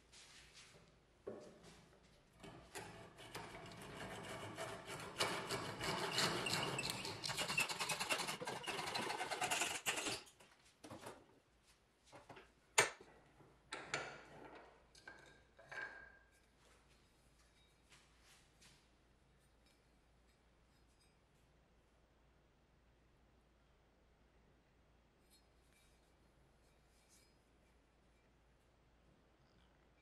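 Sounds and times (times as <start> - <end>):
hand saw cutting wood: 3.2 - 10.3.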